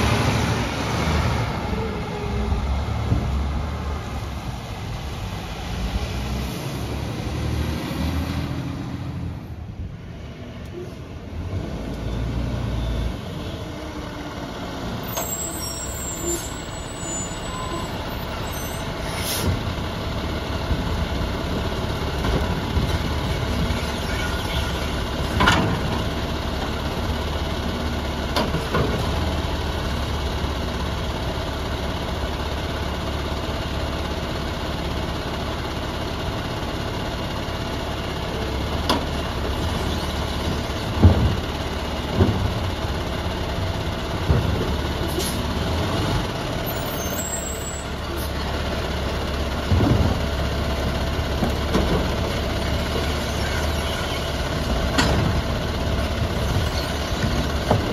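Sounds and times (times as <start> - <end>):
garbage truck running: 0.0 - 57.9
trash cart knocks: 40.5 - 42.7, 49.6 - 50.4, 57.2 - 57.9.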